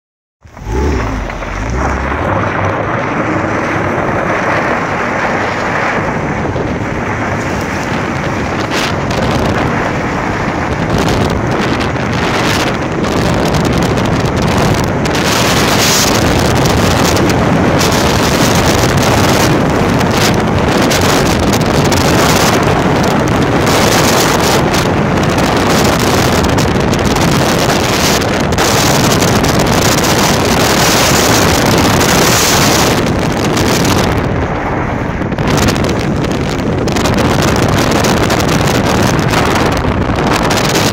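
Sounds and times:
car sliding on dirt road: 0:00.4 - 0:10.6
wind buffeting microphone: 0:00.4 - 0:40.9.

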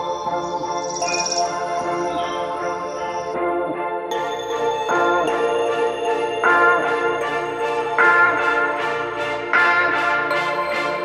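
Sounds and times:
sustained music chords: 0:00.0 - 0:11.0.

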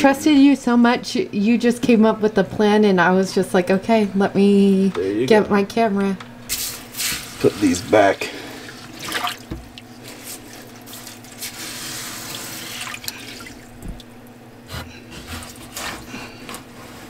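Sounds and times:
water dripping and splashing: 0:08.6 - 0:11.6, 0:12.3 - 0:14.3.

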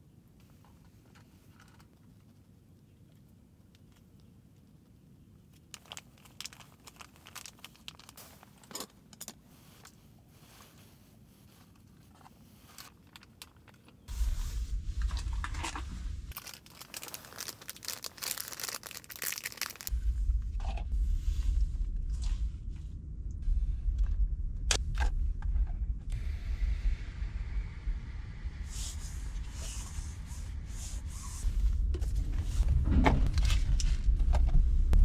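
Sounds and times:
foil sachets crinkling and tearing: 0:05.7 - 0:09.4, 0:16.3 - 0:19.9
low rumble on microphone: 0:14.1 - 0:16.4, 0:19.9 - 0:35.0.

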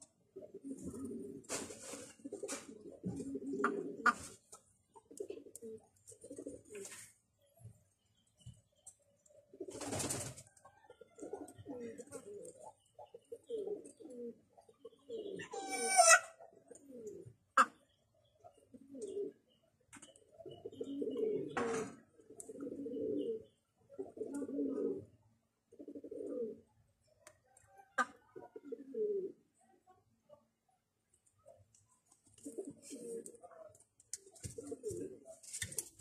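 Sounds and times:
hen giving low throaty calls: 0:02.2 - 0:04.4, 0:11.2 - 0:17.9
hen squawk: 0:15.4 - 0:16.3.

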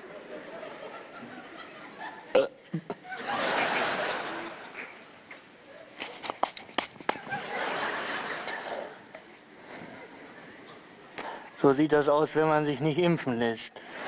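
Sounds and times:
audience laughing: 0:00.0 - 0:05.0, 0:07.1 - 0:09.0.

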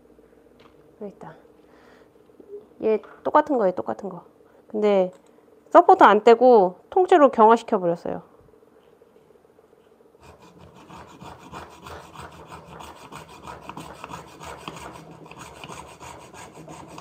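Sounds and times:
hacksaw rasping through resin: 0:10.2 - 0:17.0.

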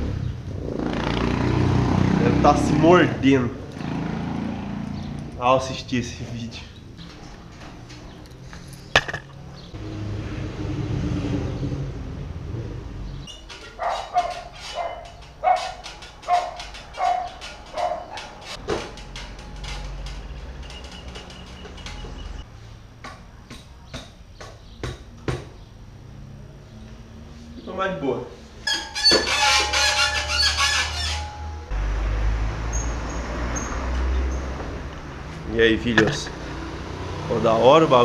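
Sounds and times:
metal parts clicking and knocking: 0:06.8 - 0:09.4, 0:13.3 - 0:22.4
dog barking: 0:13.8 - 0:18.3.

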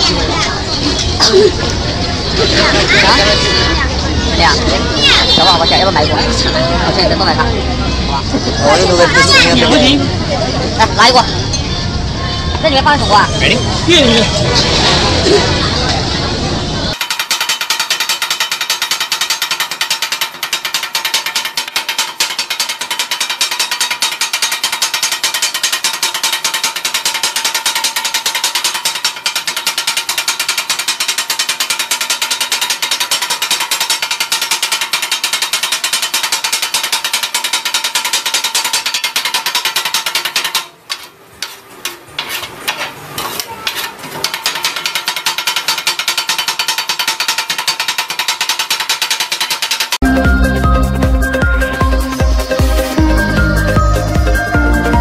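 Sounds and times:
metal blade chopping on griddle: 0:17.0 - 0:50.0.

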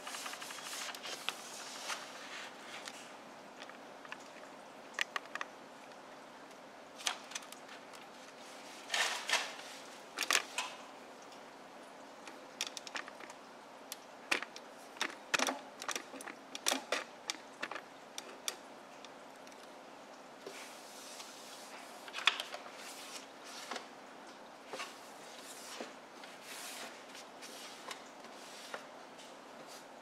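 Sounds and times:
short rustling scrapes: 0:00.0 - 0:03.1.

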